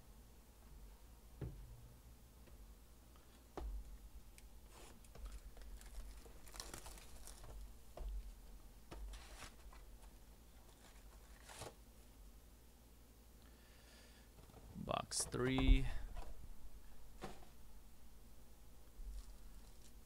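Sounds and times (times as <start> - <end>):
plastic shrink wrap tearing: 5.3 - 7.6, 19.1 - 20.0.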